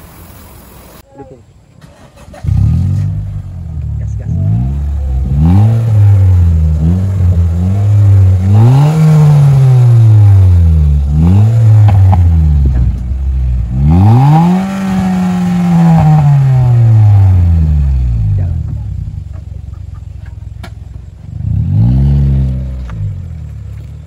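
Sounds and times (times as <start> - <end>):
car engine revving: 1.8 - 24.0.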